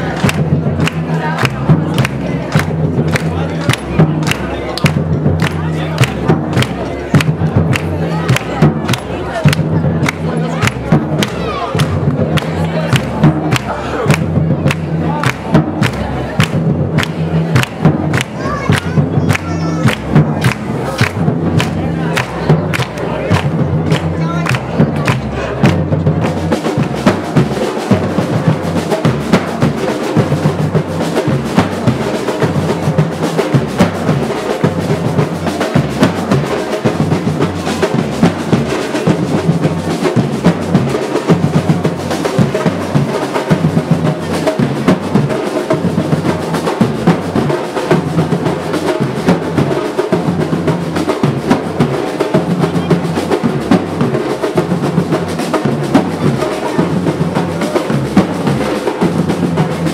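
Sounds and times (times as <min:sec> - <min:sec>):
drums playing fast rhythm: 0:00.0 - 0:59.9.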